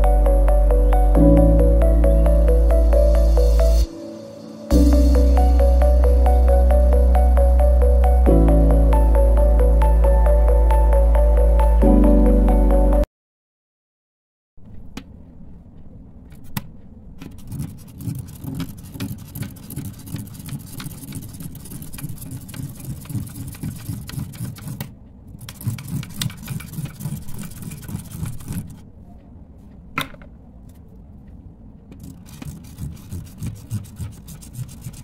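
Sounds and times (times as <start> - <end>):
pen scratching on paper: 17.2 - 28.8, 32.0 - 35.0.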